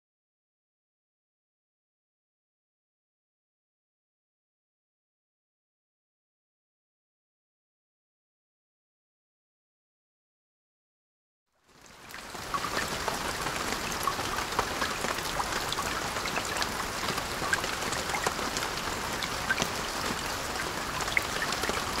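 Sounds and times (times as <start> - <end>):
rain ticking on window glass: 11.6 - 22.0.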